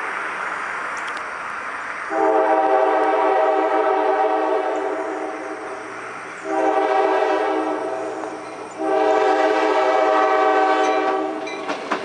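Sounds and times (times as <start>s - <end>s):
locomotive air horn blasts: 2.1s - 5.7s, 6.4s - 11.5s.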